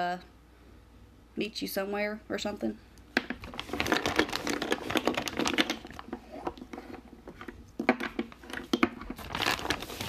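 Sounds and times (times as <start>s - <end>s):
plastic bag rustling: 3.3s - 10.0s.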